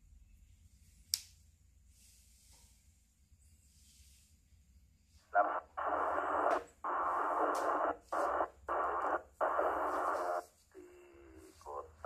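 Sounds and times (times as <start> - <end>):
radio static bursts: 5.3 - 12.0.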